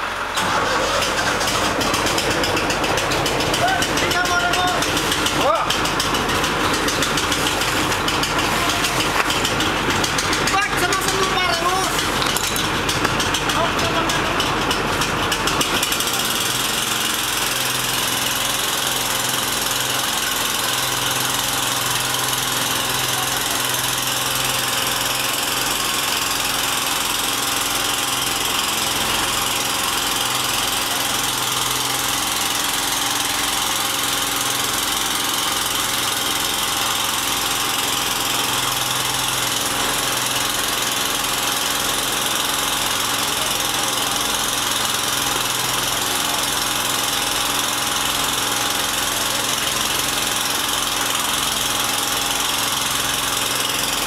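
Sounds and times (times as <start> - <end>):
fire truck engine humming: 0.0 - 16.3.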